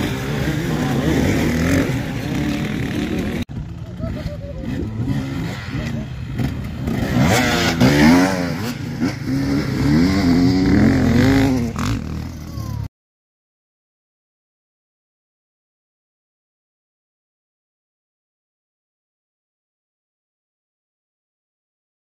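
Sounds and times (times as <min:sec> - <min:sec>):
motorcycle engine revving: 0:00.0 - 0:12.9.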